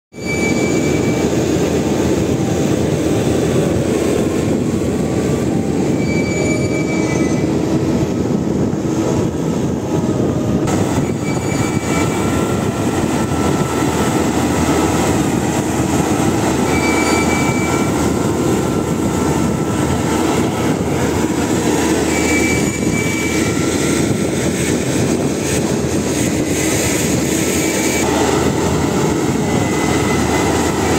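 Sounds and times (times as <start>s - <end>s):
short high squeal: 0.1s - 1.4s, 5.8s - 7.7s, 10.9s - 12.4s, 16.6s - 18.1s, 21.9s - 23.7s.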